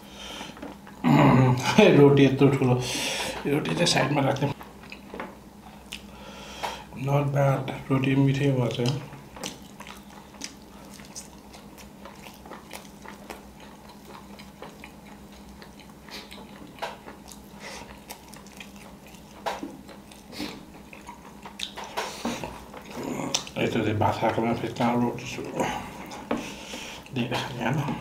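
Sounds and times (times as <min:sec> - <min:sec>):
faint steady hum: 0:00.0 - 0:28.0
chewing and mouth smacks: 0:04.4 - 0:06.1, 0:08.7 - 0:23.6.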